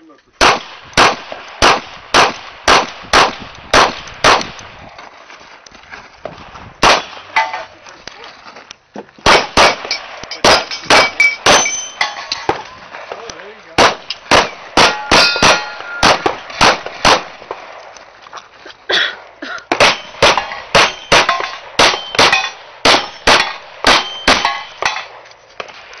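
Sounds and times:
pistol shots: 0:00.4 - 0:04.7, 0:06.8 - 0:07.6, 0:09.2 - 0:17.8, 0:19.7 - 0:25.8
steel targets clanging: 0:07.0 - 0:07.8, 0:09.7 - 0:13.3, 0:13.9 - 0:16.6, 0:19.7 - 0:25.3.

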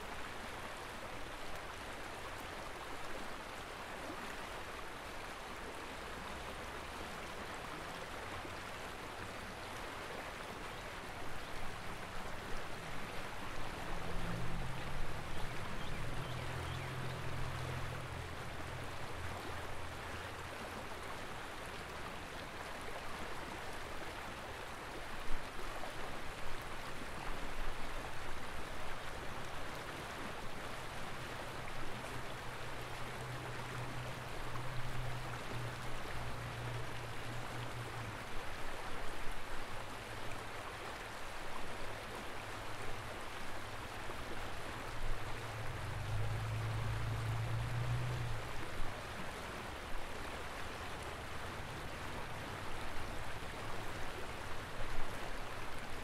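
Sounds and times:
flowing river water: 0:00.0 - 0:56.0.

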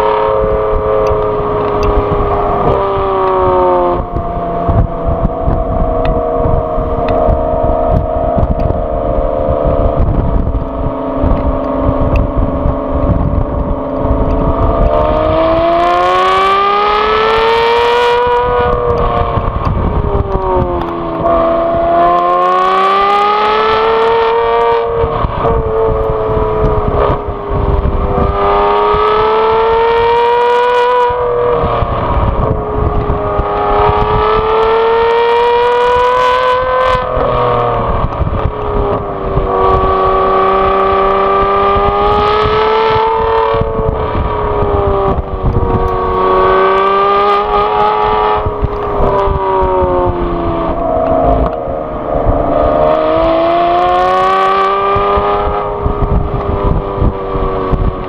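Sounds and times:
car engine exhaust revving: 0:00.0 - 0:58.0.

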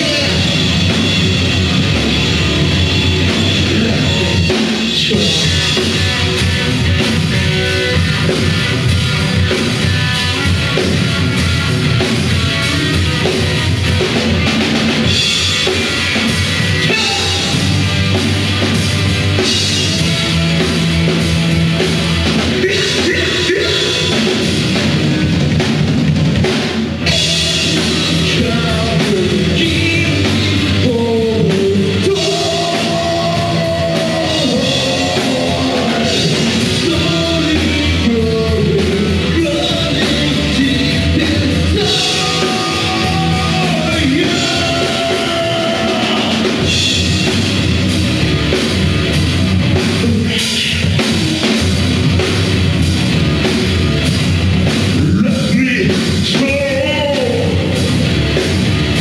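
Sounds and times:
live rock band playing: 0:00.0 - 0:59.0
man singing into microphone: 0:03.6 - 0:05.8, 0:22.6 - 0:24.4, 0:27.2 - 0:46.7, 0:50.0 - 0:51.0, 0:55.0 - 0:57.8.

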